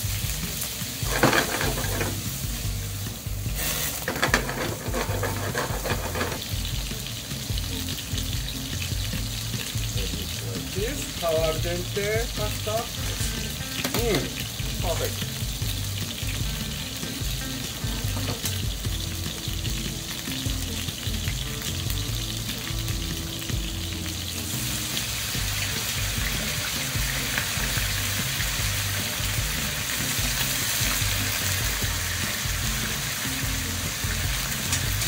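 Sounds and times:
shrimp sizzling in a pan: 0:00.0 - 0:35.0.

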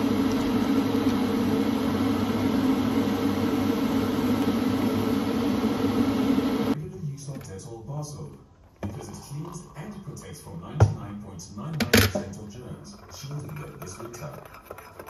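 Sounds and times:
electric kettle heating water: 0:00.0 - 0:06.8.

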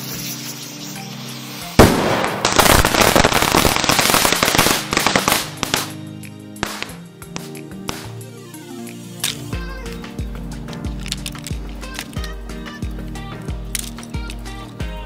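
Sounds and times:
firework crackling: 0:00.0 - 0:06.0, 0:06.6 - 0:08.3
background music: 0:00.0 - 0:15.0
firework bang: 0:01.8 - 0:05.9.

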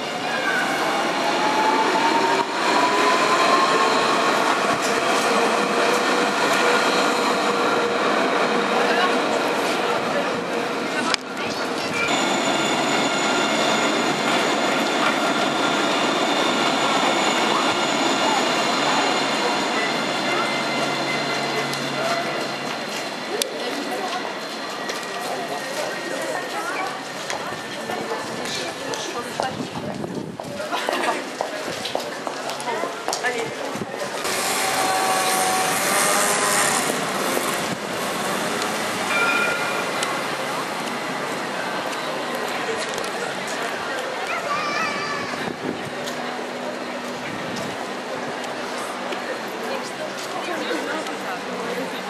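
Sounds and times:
tram wheels rolling on rail: 0:00.0 - 0:52.0
tram running hiss: 0:31.2 - 0:52.0.

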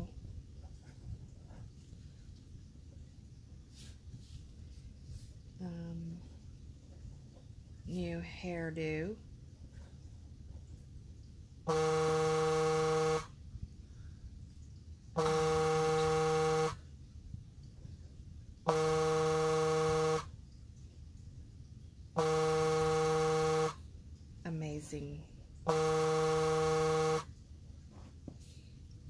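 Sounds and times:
phone buzzing tone: 0:11.7 - 0:13.4, 0:15.2 - 0:16.8, 0:18.7 - 0:20.4, 0:22.2 - 0:23.8, 0:25.6 - 0:27.3.

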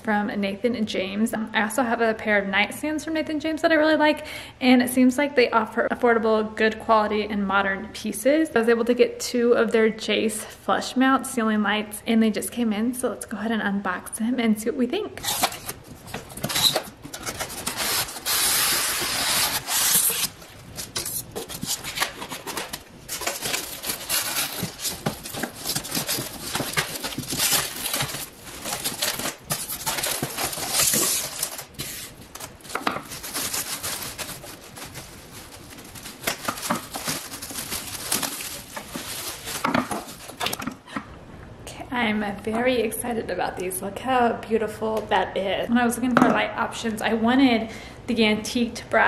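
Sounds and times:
cardboard and plastic packaging rustling: 0:15.2 - 0:40.9.

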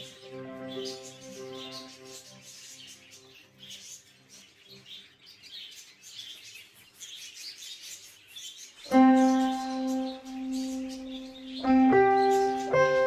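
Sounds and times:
loud piano music: 0:00.0 - 0:03.6, 0:08.9 - 0:13.0
budgerigars chirping: 0:00.0 - 0:13.0.

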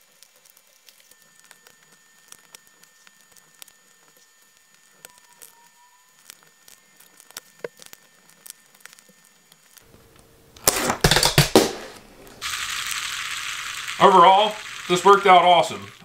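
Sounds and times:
steady hiss: 0:06.1 - 0:16.0.

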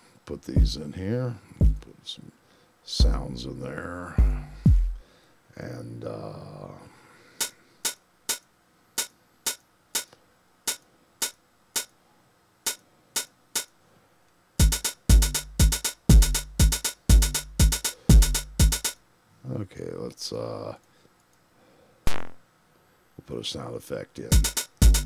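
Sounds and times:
open hi-hat hits: 0:00.0 - 0:01.0, 0:01.6 - 0:01.9, 0:02.9 - 0:05.1, 0:07.4 - 0:12.0, 0:12.6 - 0:13.8, 0:14.6 - 0:19.1, 0:24.3 - 0:25.0
drum machine groove: 0:00.5 - 0:00.9, 0:01.6 - 0:01.9, 0:03.0 - 0:03.6, 0:04.2 - 0:05.0, 0:07.4 - 0:12.0, 0:12.7 - 0:13.8, 0:14.6 - 0:19.0, 0:24.3 - 0:25.0.

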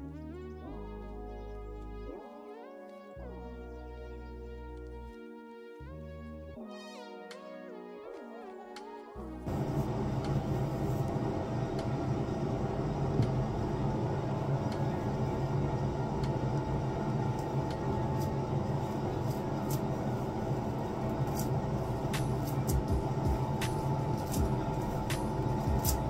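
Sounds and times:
low mechanical hum: 0:09.4 - 0:26.0
brush strokes through hair: 0:09.5 - 0:11.3, 0:18.1 - 0:23.0.

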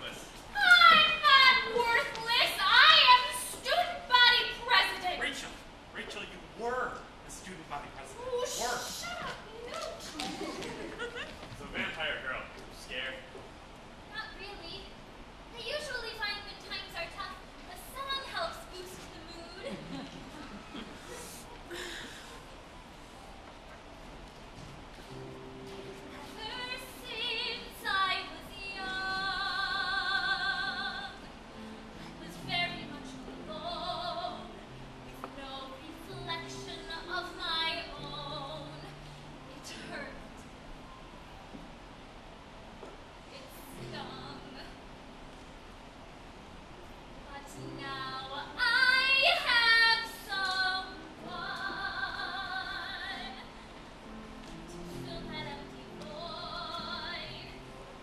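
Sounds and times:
soft instrumental accompaniment: 0:00.0 - 0:58.0
woman singing operatically: 0:00.6 - 0:05.1, 0:26.1 - 0:31.3, 0:32.1 - 0:34.6, 0:35.3 - 0:40.2, 0:47.4 - 0:53.6, 0:54.9 - 0:57.6.

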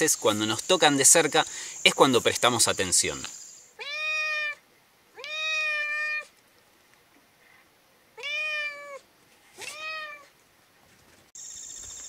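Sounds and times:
cat meowing: 0:03.8 - 0:04.6, 0:05.2 - 0:06.3, 0:08.2 - 0:10.3.

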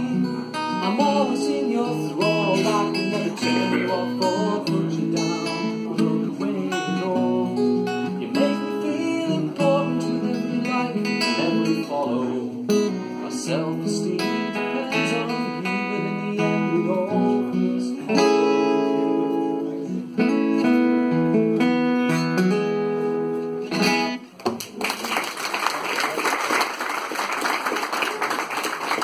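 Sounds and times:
acoustic guitar strumming chords: 0:00.0 - 0:24.4
audience applauding: 0:24.4 - 0:29.0.

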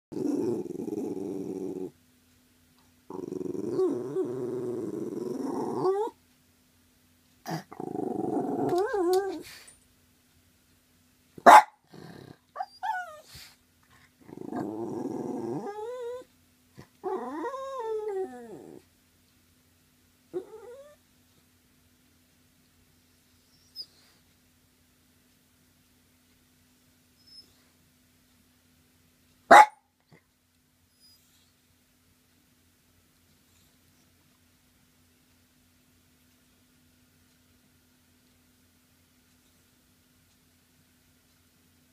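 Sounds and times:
dog growling and whining: 0:00.1 - 0:02.0, 0:03.1 - 0:06.2, 0:07.4 - 0:09.7, 0:11.8 - 0:18.9, 0:20.3 - 0:21.0
dog barking: 0:11.4 - 0:11.8, 0:29.5 - 0:29.8
dog yipping: 0:11.5 - 0:11.8, 0:29.5 - 0:29.8.

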